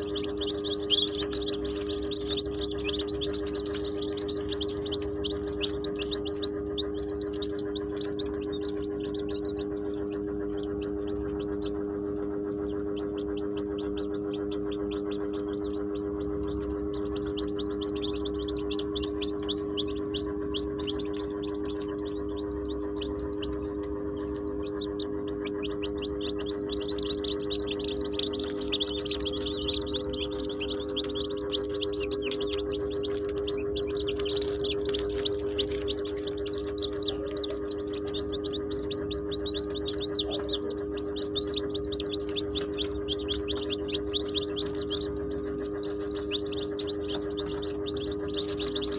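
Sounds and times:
chicks peeping: 0:00.0 - 0:48.9
steady low hum: 0:00.0 - 0:48.9.

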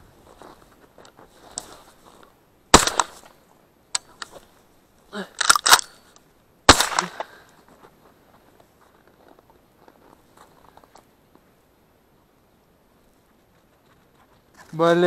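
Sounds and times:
shotgun shots: 0:02.7 - 0:03.2, 0:06.7 - 0:07.3.

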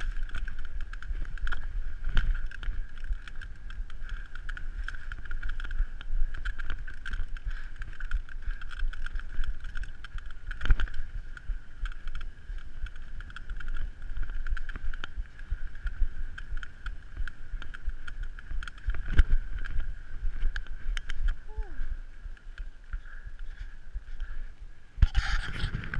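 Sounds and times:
bike tyre rumble: 0:00.0 - 0:25.9.

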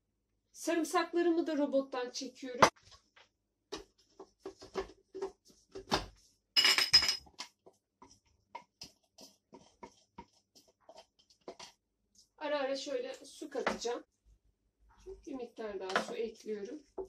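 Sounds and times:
bowls clinking and knocking: 0:06.6 - 0:07.5
spatula scraping bowl: 0:08.0 - 0:11.7.

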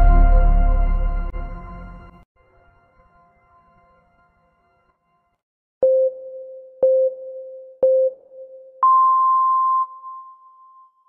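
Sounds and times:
long higher beep: 0:08.8 - 0:10.9.

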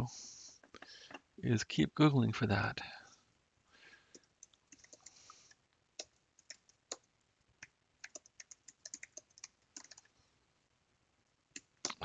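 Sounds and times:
faint keyboard keystrokes: 0:04.1 - 0:10.1.

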